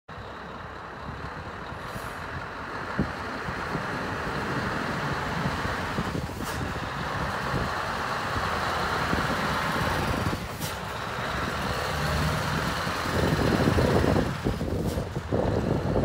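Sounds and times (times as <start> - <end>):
diesel truck engine driving past: 0.1 - 16.0.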